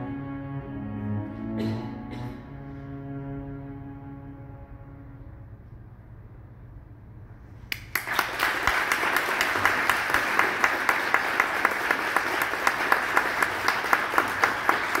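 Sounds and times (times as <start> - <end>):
cellos playing low note: 0.0 - 5.9
audience applause: 7.7 - 15.0.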